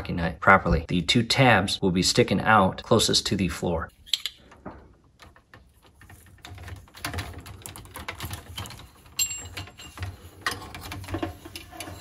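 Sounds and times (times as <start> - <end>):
plastic tubing clicking and rustling: 3.9 - 12.0.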